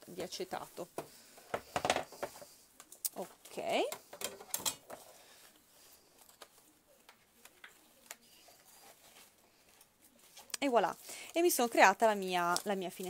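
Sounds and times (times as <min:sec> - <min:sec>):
cardstock rustling: 0:04.9 - 0:13.0.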